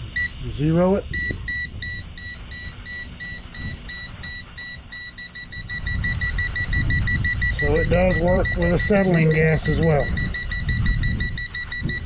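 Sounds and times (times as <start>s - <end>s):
gas detector rapid beeps: 0.1s - 0.5s, 1.1s - 12.0s
wind on microphone: 5.6s - 12.0s.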